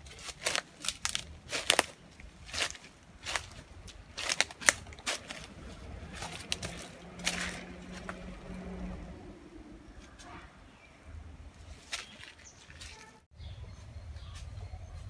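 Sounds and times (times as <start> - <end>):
footsteps crunching on dry leaves: 0.0 - 9.0, 11.7 - 15.0.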